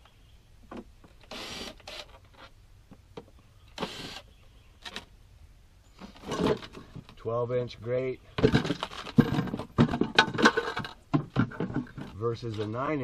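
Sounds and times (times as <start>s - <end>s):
cordless drill whirring: 1.3s - 2.2s, 3.8s - 4.2s
plastic parts clicking and knocking: 8.4s - 12.2s.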